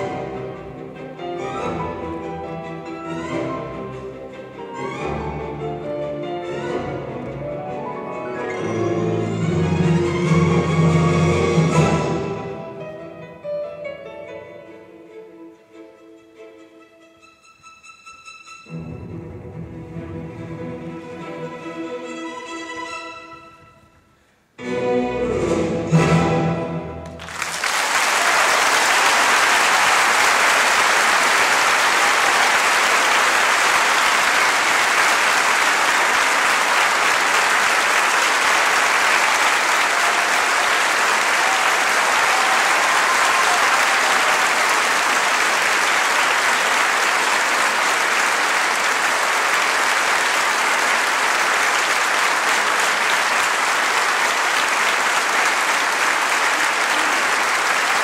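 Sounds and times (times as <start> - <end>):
music: 0.0 - 27.3
audience applauding: 27.0 - 58.0.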